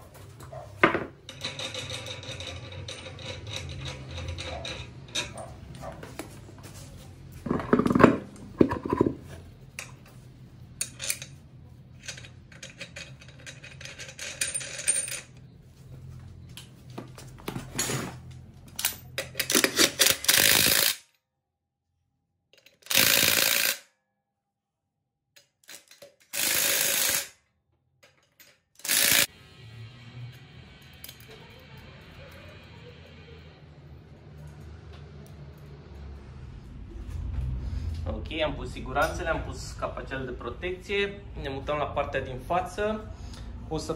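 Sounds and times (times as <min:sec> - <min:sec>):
metal wheel nuts clinking: 0:00.9 - 0:05.7, 0:10.7 - 0:15.6, 0:28.0 - 0:29.3.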